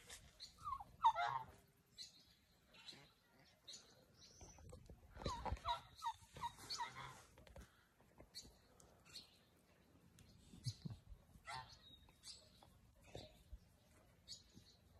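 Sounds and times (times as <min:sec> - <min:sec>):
fowl calling: 0:00.6 - 0:01.6.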